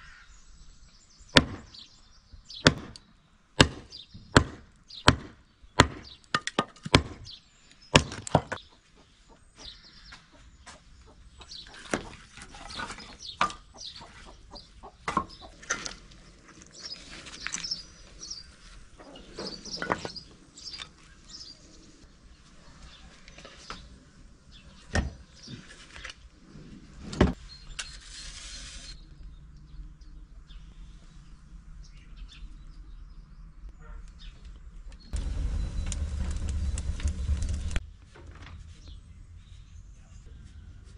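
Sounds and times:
birds chirping: 0:00.0 - 0:26.3, 0:27.3 - 0:37.8
hatchet splitting log: 0:01.4 - 0:01.7, 0:02.6 - 0:03.0, 0:03.6 - 0:07.3, 0:07.9 - 0:08.6
firewood knocking and clattering: 0:35.1 - 0:38.6.

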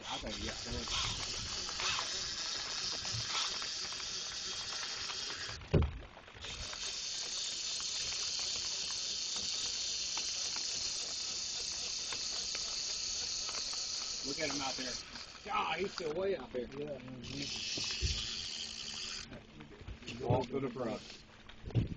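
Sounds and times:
fishing reel clicking: 0:00.0 - 0:05.6, 0:06.4 - 0:19.3, 0:20.8 - 0:21.2
rain hissing: 0:00.0 - 0:21.8
thump: 0:05.7 - 0:06.0.

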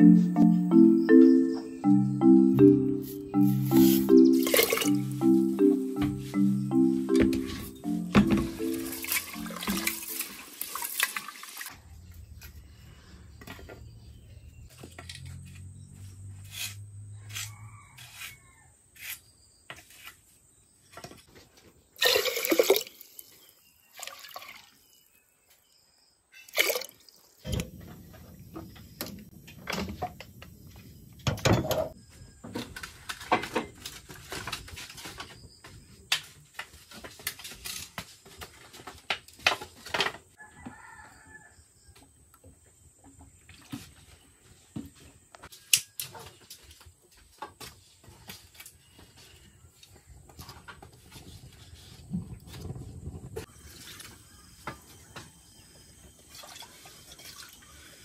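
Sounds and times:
hands washing rice in water: 0:03.9 - 0:05.0, 0:08.7 - 0:11.8.

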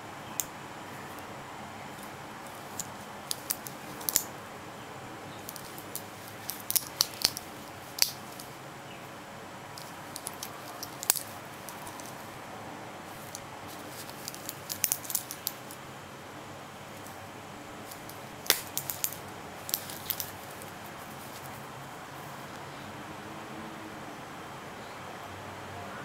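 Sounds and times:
steady low hiss: 0:00.0 - 0:26.0
watch bracelet clicking and clinking: 0:02.0 - 0:04.3, 0:05.4 - 0:08.6, 0:09.8 - 0:12.2, 0:13.2 - 0:15.8, 0:17.9 - 0:20.8.

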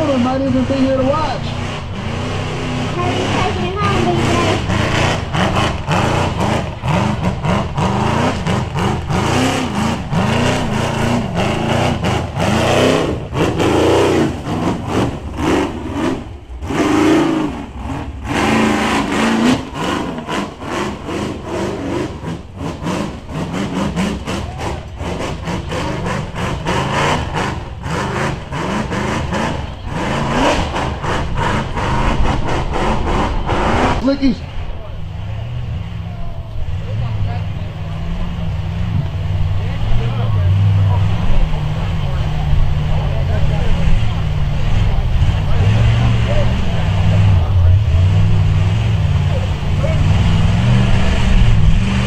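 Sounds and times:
buggy engine revving: 0:00.0 - 0:52.0.

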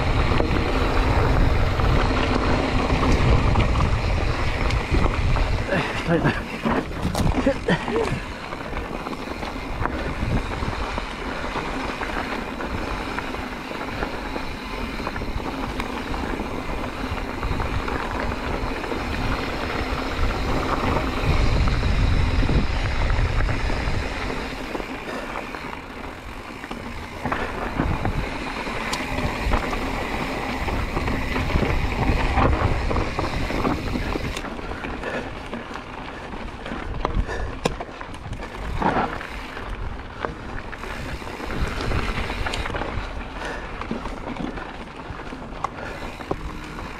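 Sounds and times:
tyres crunching over gravel: 0:00.0 - 0:46.9
wind buffeting microphone: 0:00.0 - 0:46.9
bike knocking: 0:43.4 - 0:46.9.

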